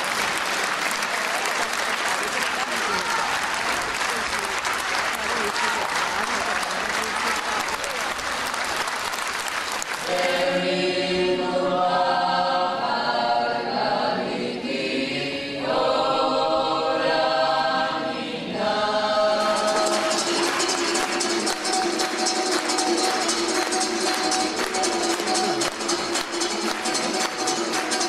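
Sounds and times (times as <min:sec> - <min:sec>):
applause: 0:00.0 - 0:10.5, 0:19.5 - 0:28.0
mixed choir singing in harmony: 0:10.0 - 0:28.0.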